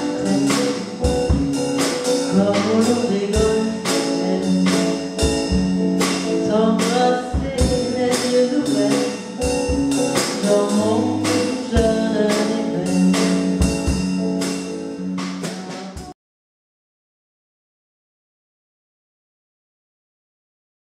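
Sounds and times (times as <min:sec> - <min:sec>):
woman singing: 0:00.0 - 0:01.3, 0:02.3 - 0:05.0, 0:06.4 - 0:13.6
electric guitar: 0:00.0 - 0:16.1
drum kit beat: 0:00.0 - 0:16.2.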